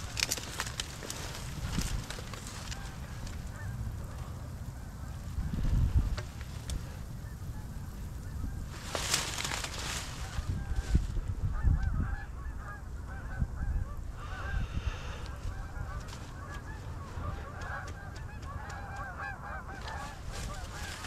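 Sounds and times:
geese honking: 0.0 - 21.0.

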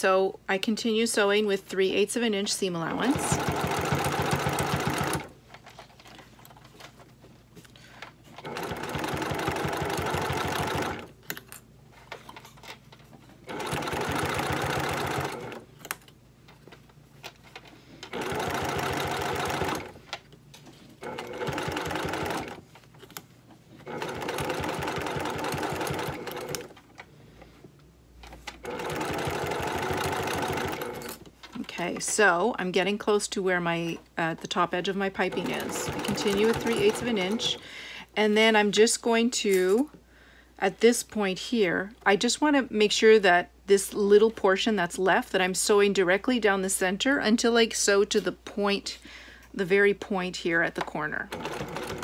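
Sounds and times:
sewing machine stitching: 2.9 - 5.3, 8.4 - 11.1, 13.4 - 15.6, 18.0 - 20.0, 21.0 - 22.6, 23.8 - 26.8, 28.5 - 31.8, 35.2 - 37.6, 51.3 - 52.0.

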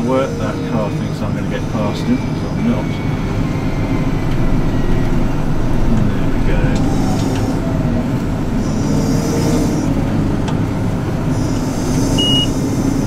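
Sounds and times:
combine harvester engine rumble: 0.0 - 13.0
short high beep: 12.2 - 12.6.

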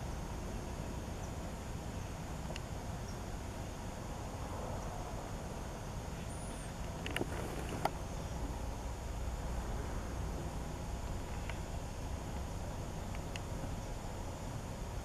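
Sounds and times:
steady low rumble: 0.0 - 15.0
faint clicks: 6.8 - 8.0, 13.1 - 13.5.

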